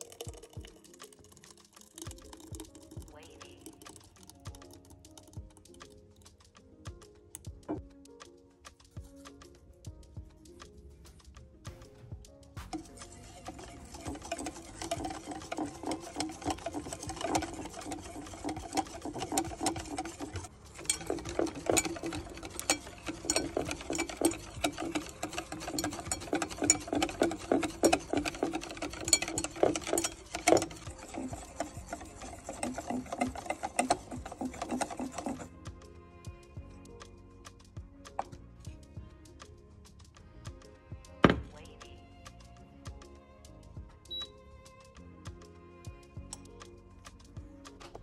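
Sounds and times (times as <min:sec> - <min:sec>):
whisk beating batter in a bowl: 0:00.0 - 0:08.2, 0:12.6 - 0:38.8.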